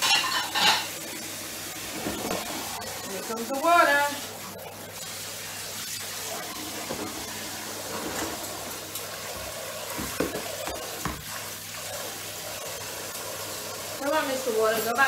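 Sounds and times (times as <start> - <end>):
tap water running into sink: 0.0 - 15.0
dishes knocking: 10.0 - 11.2.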